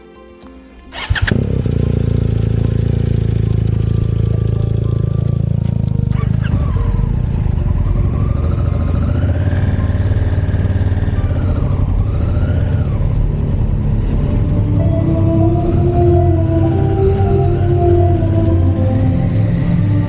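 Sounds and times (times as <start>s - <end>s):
motorcycle engine running: 0.9s - 20.0s.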